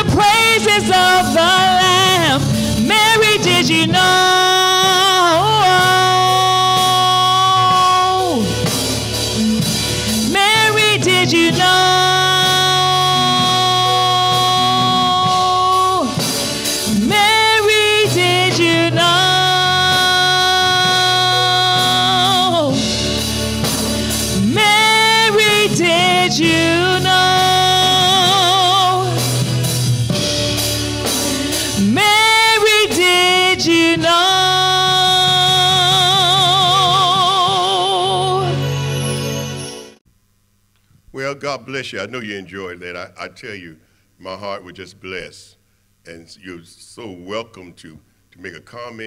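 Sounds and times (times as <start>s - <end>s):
woman singing solo: 10.3s - 16.2s, 16.9s - 22.9s, 24.4s - 29.2s, 31.7s - 38.6s.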